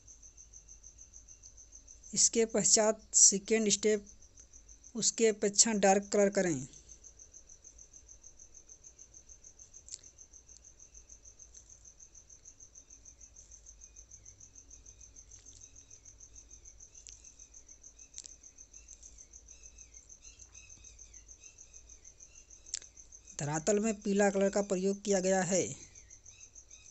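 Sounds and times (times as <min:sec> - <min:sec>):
cricket chirping: 0:00.0 - 0:26.9.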